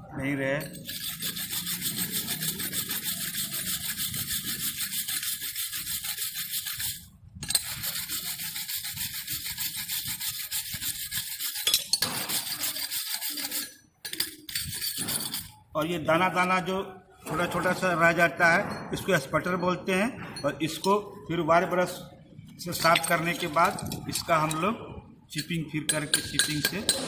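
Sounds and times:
wire brush scrubbing metal: 0.7s - 15.6s.

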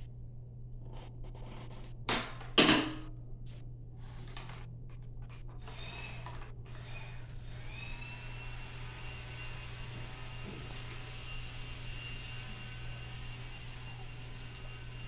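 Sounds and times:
low hum: 3.0s - 15.0s.

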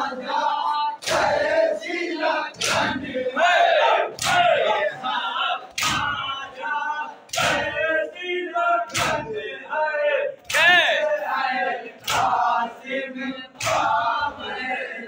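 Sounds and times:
men chanting together: 0.0s - 15.0s
unison chest-beats: 1.0s - 1.7s, 2.5s - 3.2s, 4.1s - 4.7s, 5.7s - 6.4s, 7.3s - 7.9s, 8.9s - 9.4s, 12.0s - 12.6s, 13.6s - 14.2s.

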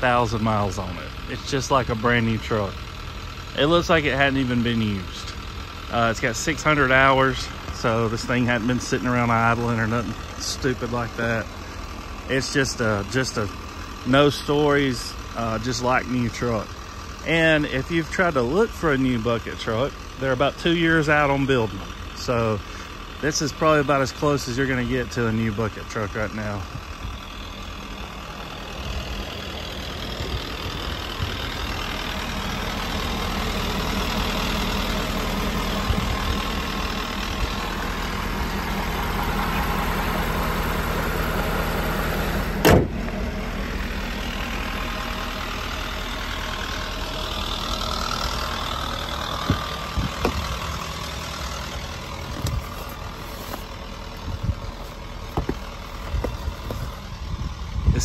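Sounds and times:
diesel truck engine idling: 0.0s - 58.0s
truck hood slamming shut: 42.6s - 43.0s
paper rustling: 52.3s - 53.8s.

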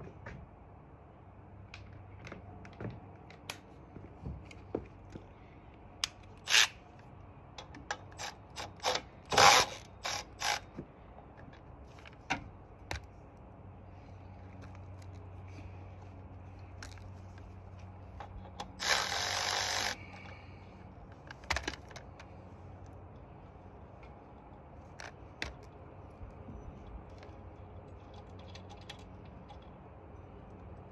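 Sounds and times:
cordless ratchet zipping: 6.4s - 6.8s, 8.1s - 10.7s, 18.5s - 20.2s.

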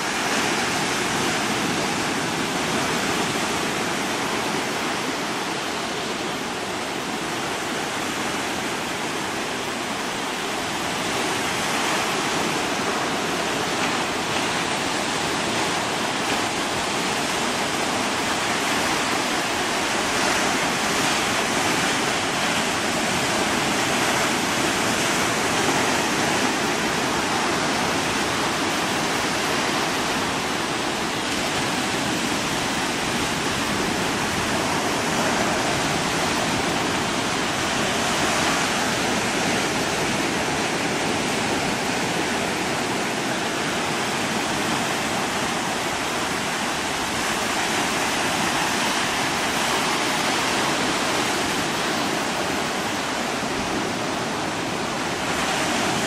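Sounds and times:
ocean waves breaking on beach: 0.0s - 56.0s.

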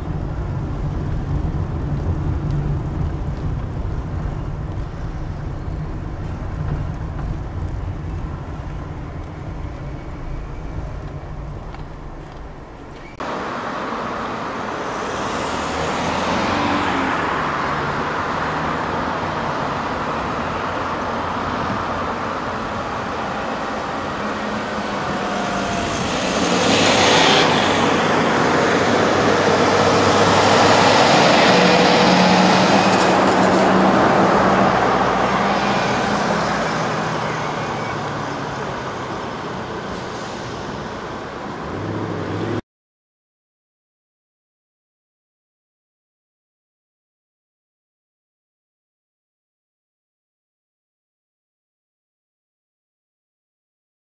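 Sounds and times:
street traffic: 0.0s - 42.6s
truck diesel engine passing: 0.0s - 42.6s.

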